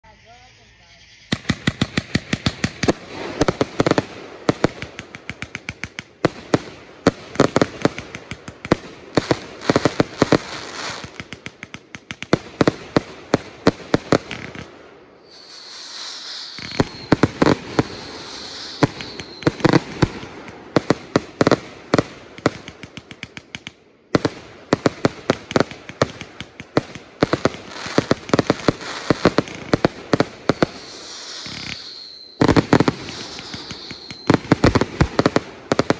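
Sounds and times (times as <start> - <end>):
fireworks hiss: 0.0 - 23.4, 24.2 - 35.9
fireworks crackling bursts: 0.5 - 35.9.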